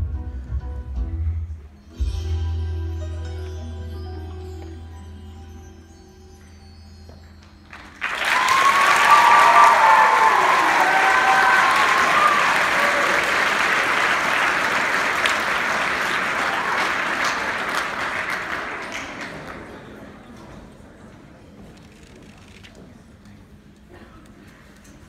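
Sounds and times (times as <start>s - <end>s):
audience applause: 7.7s - 20.3s
shouted cheers: 8.0s - 14.4s, 16.0s - 17.6s.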